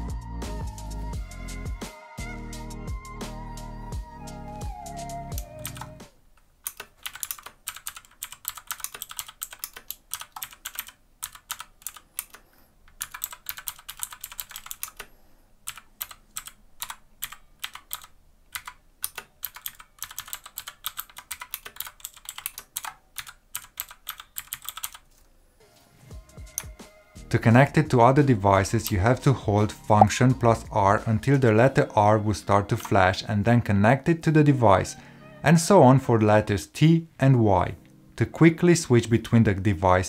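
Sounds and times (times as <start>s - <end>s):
mechanical keyboard clicks: 5.3s - 6.0s, 6.6s - 25.0s.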